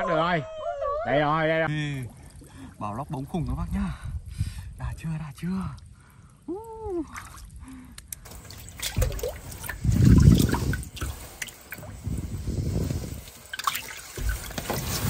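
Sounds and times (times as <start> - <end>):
water splashing and sloshing: 1.7 - 3.7, 5.8 - 15.0
water dripping: 1.7 - 4.0, 4.8 - 14.7.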